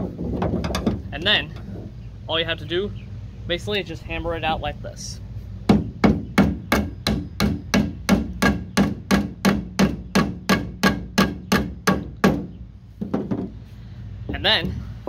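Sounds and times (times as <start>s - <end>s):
hammer striking nail: 5.7s - 12.5s.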